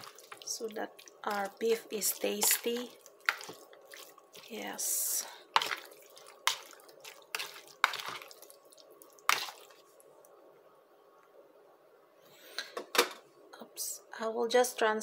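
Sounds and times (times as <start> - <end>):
fork stirring wet meat: 0.0 - 10.0.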